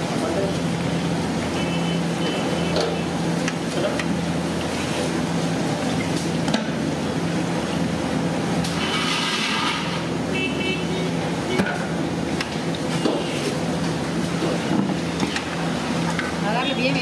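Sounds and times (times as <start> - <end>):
oil sizzling in a wok: 0.0 - 10.3.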